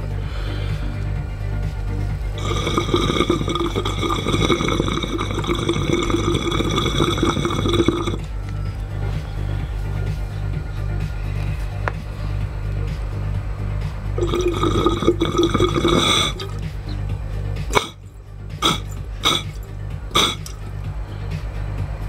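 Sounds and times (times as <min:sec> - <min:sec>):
water gurgling in a bong: 0:02.4 - 0:08.2, 0:14.2 - 0:17.0, 0:17.7 - 0:18.0, 0:18.6 - 0:20.6.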